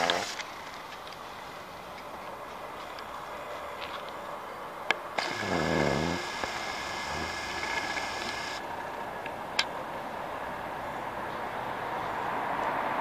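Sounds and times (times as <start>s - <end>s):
street background noise: 0.0s - 13.0s
camera clicks: 5.2s - 5.6s
zoom motor whining: 5.2s - 8.6s.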